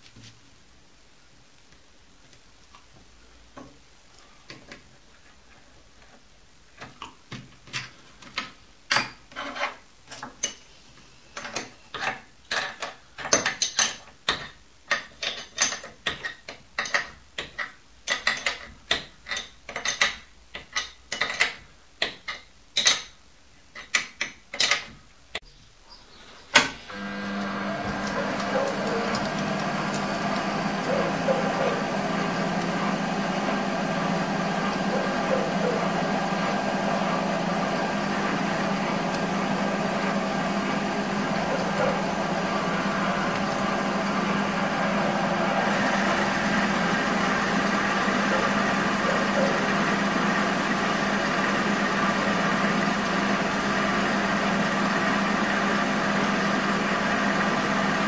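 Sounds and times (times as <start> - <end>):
lathe motor humming: 26.9 - 58.0.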